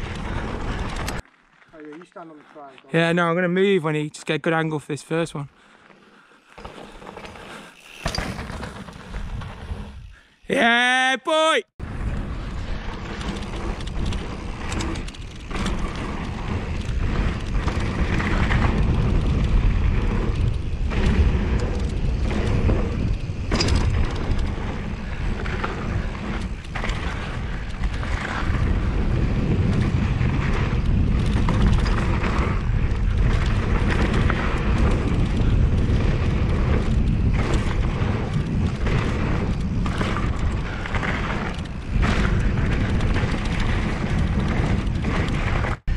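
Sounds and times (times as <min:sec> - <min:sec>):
wind rumble on microphone: 0:00.0 - 0:01.2, 0:11.8 - 0:45.9
bike knocking and rattling: 0:00.0 - 0:02.0, 0:05.6 - 0:10.3, 0:11.8 - 0:45.9
bike tyre noise: 0:00.0 - 0:03.7, 0:05.0 - 0:11.0, 0:11.8 - 0:45.9.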